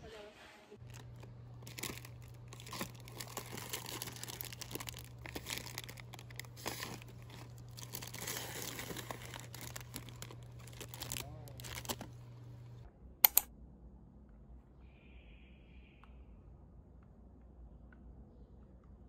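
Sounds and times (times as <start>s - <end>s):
plastic bags crinkling: 0.8s - 12.8s
steady low hum: 0.8s - 19.0s.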